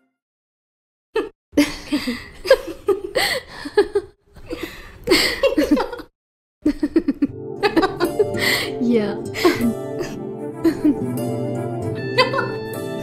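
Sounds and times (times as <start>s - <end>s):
women laughing together: 5.1s - 8.4s, 10.6s - 11.0s.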